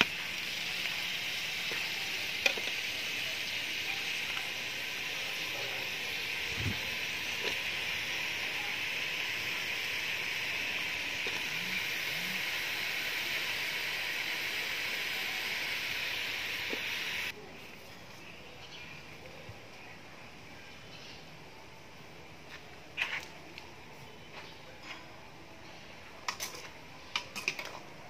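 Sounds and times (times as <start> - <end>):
meat sizzling in a wok: 0.0 - 17.4.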